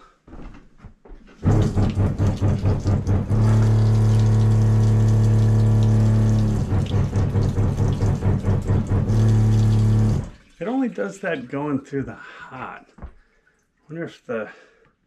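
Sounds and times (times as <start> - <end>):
electric water pump humming: 1.4 - 11.1
water pouring from faucet: 1.4 - 11.6.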